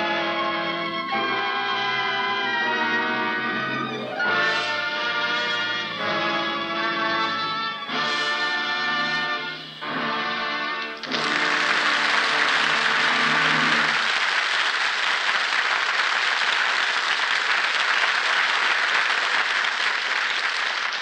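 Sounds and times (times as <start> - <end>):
orchestra chord: 0.0 - 14.0
audience applauding: 10.8 - 21.0.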